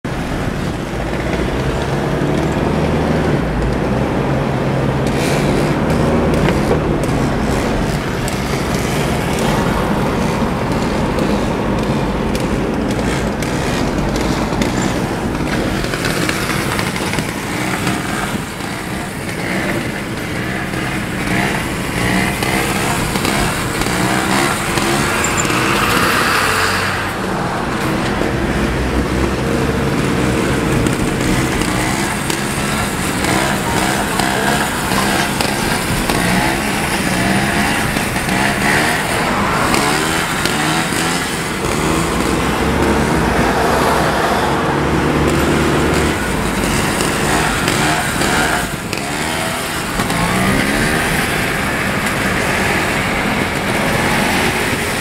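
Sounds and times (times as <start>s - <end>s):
car engine: 0.0s - 55.0s
motorcycle engines running: 0.0s - 55.0s
road noise: 0.0s - 55.0s.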